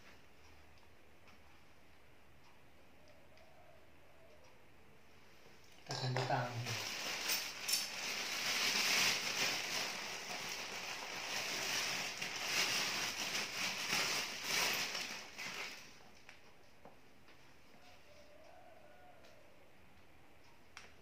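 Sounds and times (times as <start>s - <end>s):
plastic bag crinkling: 5.9s - 16.1s.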